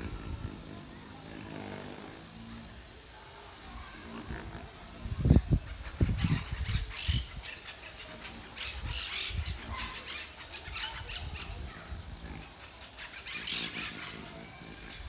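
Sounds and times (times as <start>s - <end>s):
parakeets squawking: 5.4s - 15.0s.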